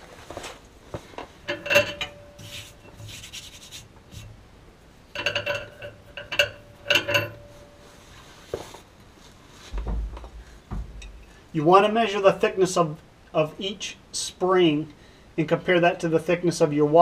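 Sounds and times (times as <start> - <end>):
small metal hardware clinking: 1.4 - 2.9, 5.1 - 7.9.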